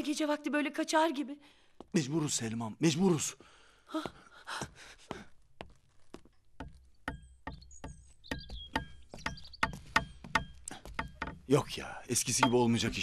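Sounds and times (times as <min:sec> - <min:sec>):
knocks and taps on wood: 0:06.2 - 0:11.5, 0:12.2 - 0:13.0
bird chirps: 0:06.3 - 0:13.0.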